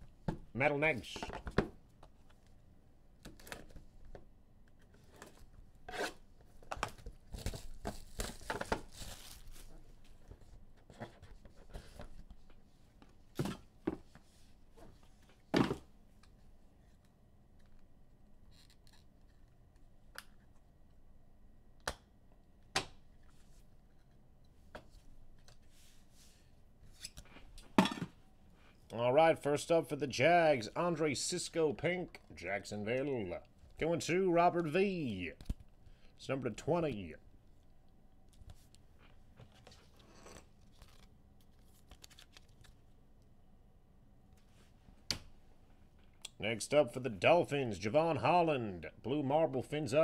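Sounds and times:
wrapper tearing and crinkling: 0:07.3 - 0:09.8
cards rustling and sliding: 0:39.4 - 0:42.8.

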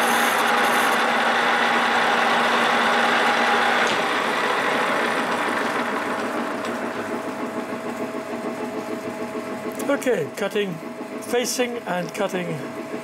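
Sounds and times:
lathe cutting metal: 0:00.0 - 0:07.7
lathe drive hum: 0:00.0 - 0:13.0.

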